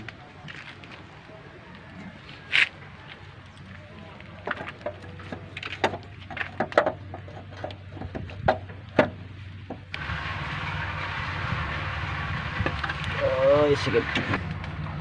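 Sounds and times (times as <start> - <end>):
metal clicks and knocks: 4.4 - 9.9.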